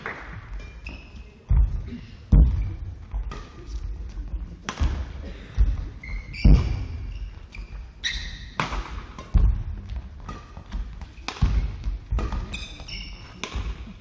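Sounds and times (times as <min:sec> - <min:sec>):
shoe squeaks: 0:00.6 - 0:01.4, 0:05.9 - 0:08.6, 0:12.3 - 0:13.8
racket hitting shuttlecock: 0:04.6 - 0:05.1, 0:08.3 - 0:14.0.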